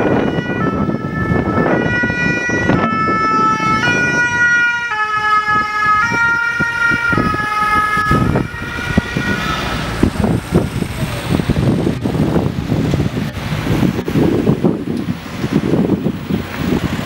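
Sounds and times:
two-tone ambulance siren: 0.0 - 10.4
traffic noise: 0.0 - 17.0
car passing close: 8.1 - 17.0.

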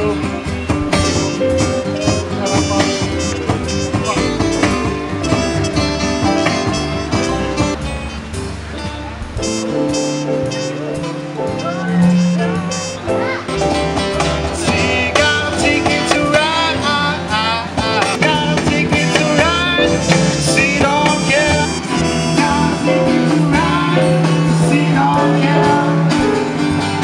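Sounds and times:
acoustic guitars: 0.0 - 27.0
electric bass guitar: 0.0 - 27.0
man singing: 1.0 - 5.6, 14.1 - 26.7.

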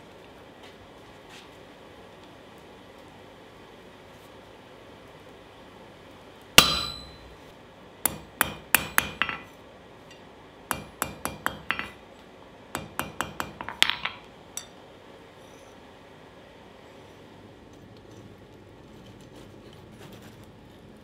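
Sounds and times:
loud ringing clang: 6.6 - 7.5
hammer striking steel on anvil: 6.6 - 12.0, 12.8 - 14.8.

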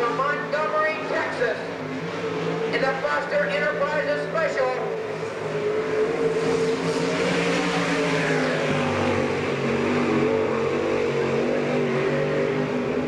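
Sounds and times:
race car engine at high revs: 0.0 - 13.0.

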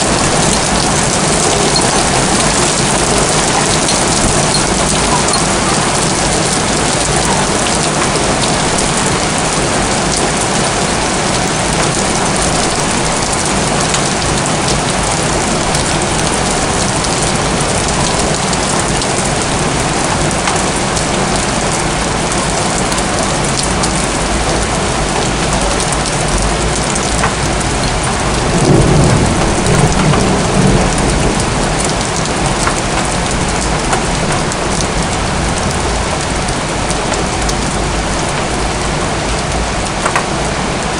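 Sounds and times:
heavy rain on rooftops: 0.0 - 40.9
low rumble of thunder: 25.6 - 38.6.

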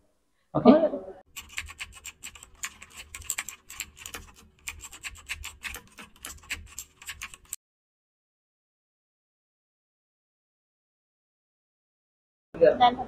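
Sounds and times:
keyboard typing clicks: 1.3 - 7.6.

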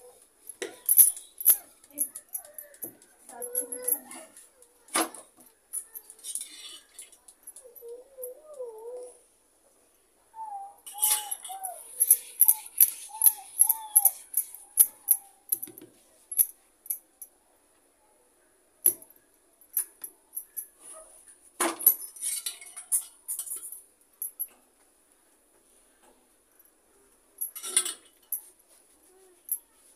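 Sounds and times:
glass bangles clinking: 0.5 - 4.3, 5.7 - 9.0, 10.5 - 17.3, 18.9 - 20.8, 27.4 - 28.5.

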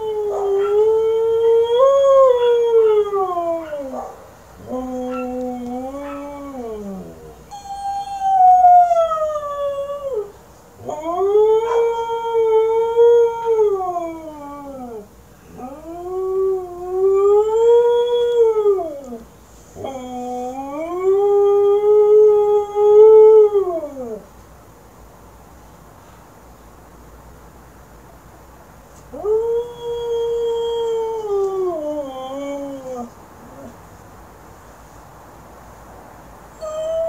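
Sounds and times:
husky howling: 0.0 - 19.2.

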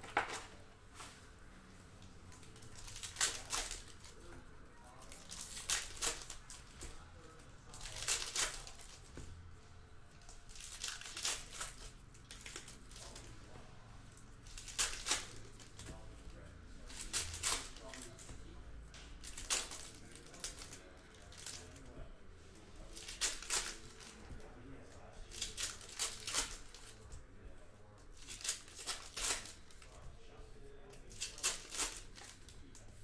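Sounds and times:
plastic wrapping crinkling and tearing: 2.3 - 4.3, 4.9 - 9.1, 10.2 - 13.5, 14.4 - 18.2, 19.2 - 21.9, 22.8 - 24.4, 25.2 - 27.0, 28.1 - 30.0, 31.1 - 32.8.

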